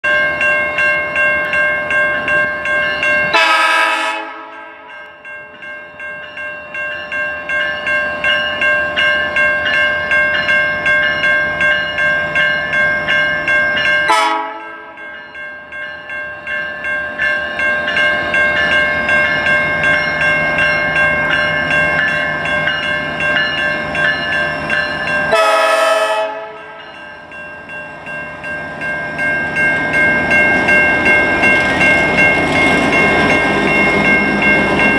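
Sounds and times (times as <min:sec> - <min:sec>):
crossing warning bell ringing: 0:00.0 - 0:34.9
locomotive horn blasts: 0:03.3 - 0:04.8, 0:14.1 - 0:15.0, 0:25.3 - 0:26.8.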